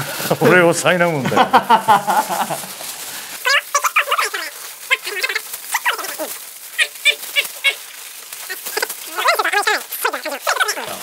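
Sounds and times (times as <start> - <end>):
aluminium foil crinkling: 0.1 - 11.0
sped-up squeaky voices chattering: 3.4 - 11.0.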